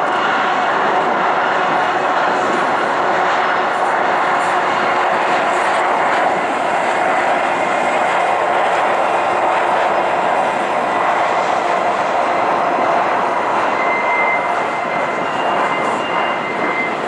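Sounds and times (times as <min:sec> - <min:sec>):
train wheels rumbling: 0:00.0 - 0:17.0
thin high squeal: 0:13.7 - 0:17.0.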